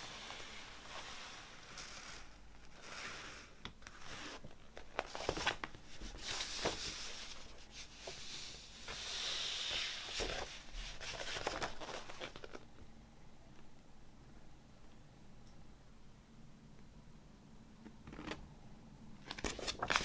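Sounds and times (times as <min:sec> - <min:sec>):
glossy paper rustling and crinkling: 0:03.8 - 0:12.7, 0:19.2 - 0:20.0
paper crackles: 0:09.7 - 0:12.7, 0:19.2 - 0:20.0.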